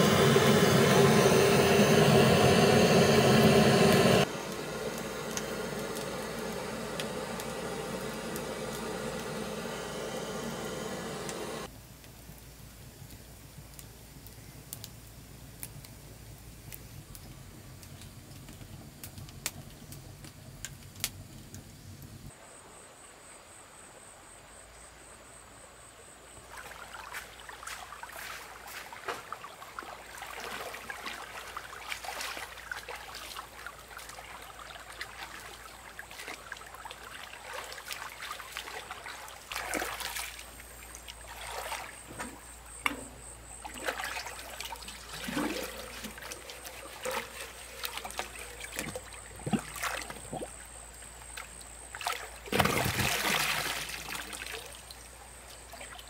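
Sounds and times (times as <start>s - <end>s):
water splashing and trickling: 26.5s - 42.5s, 43.5s - 56.0s.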